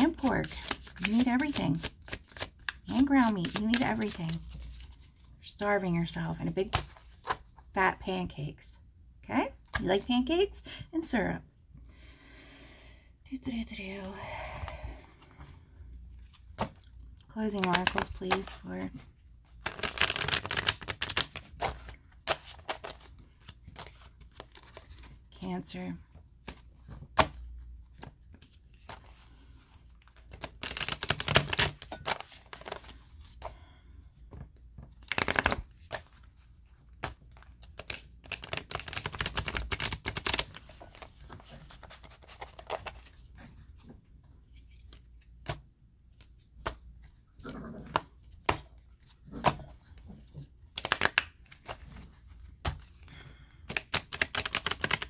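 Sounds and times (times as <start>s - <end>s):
cards being riffle shuffled: 0.2s - 5.3s, 19.5s - 25.2s, 26.4s - 33.5s, 34.9s - 43.3s, 50.2s - 53.0s, 53.6s - 55.0s.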